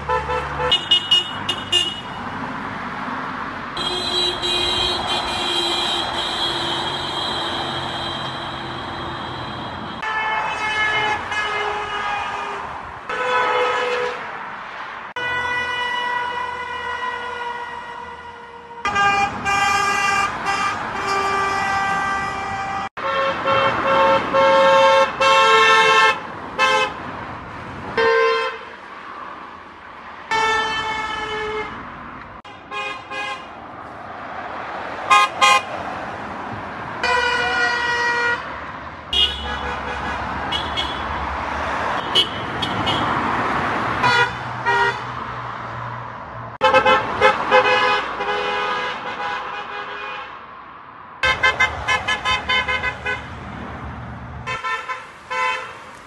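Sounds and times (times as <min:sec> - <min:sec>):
car horns honking: 0:00.0 - 0:02.4, 0:03.8 - 0:14.3, 0:15.2 - 0:27.0, 0:27.9 - 0:28.7, 0:30.3 - 0:31.8, 0:32.4 - 0:33.6, 0:35.1 - 0:35.8, 0:37.0 - 0:38.5, 0:39.1 - 0:43.3, 0:43.9 - 0:45.2, 0:46.6 - 0:50.4, 0:51.2 - 0:53.4, 0:54.4 - 0:56.0
cars driving by: 0:00.0 - 0:56.0.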